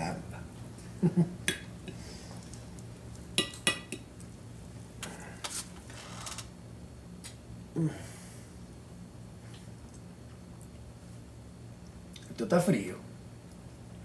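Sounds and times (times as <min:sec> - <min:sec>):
low steady hum: 0:00.0 - 0:14.0
fork scraping and rustling: 0:05.4 - 0:06.0.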